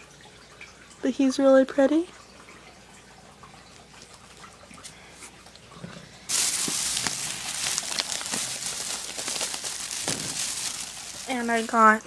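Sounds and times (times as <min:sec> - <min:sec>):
plastic bag rustling: 0:06.3 - 0:12.0.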